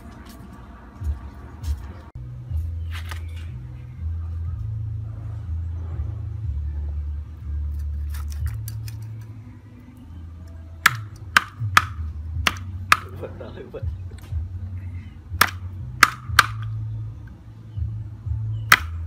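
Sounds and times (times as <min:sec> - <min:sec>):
background music bass line: 0:01.0 - 0:19.0
cleaver chopping on wooden board: 0:10.8 - 0:13.2, 0:15.4 - 0:16.7, 0:18.7 - 0:19.0.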